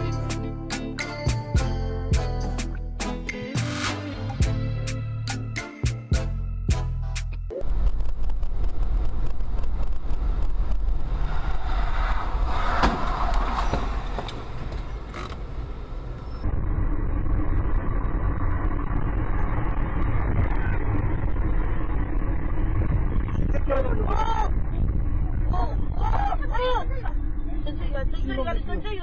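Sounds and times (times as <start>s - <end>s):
car driving on highway: 7.6s - 29.0s
car driving on wet street: 8.0s - 23.8s.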